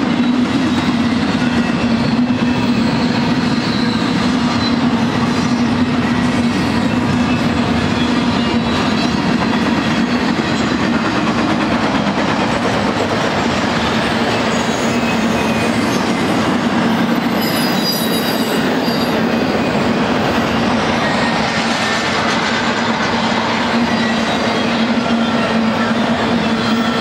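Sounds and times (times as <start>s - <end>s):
freight train wheels rumbling on rail: 0.0s - 27.0s
faint high wheel squeals: 17.2s - 19.9s.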